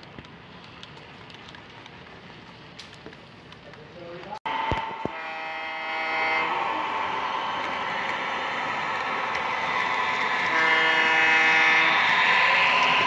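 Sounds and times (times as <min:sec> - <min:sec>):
locomotive running noise: 0:00.0 - 0:13.0
model locomotive horn blasts: 0:04.5 - 0:13.0.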